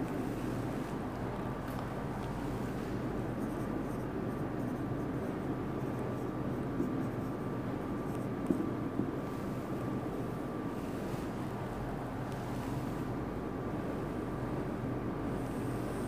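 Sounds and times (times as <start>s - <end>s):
marker pen on whiteboard: 0.0s - 9.8s
steady background hiss: 0.0s - 16.0s.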